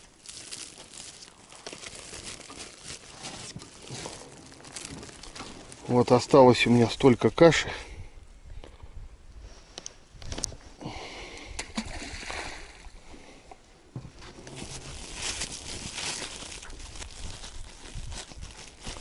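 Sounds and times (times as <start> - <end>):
water sloshing and splashing: 0.0 - 5.9.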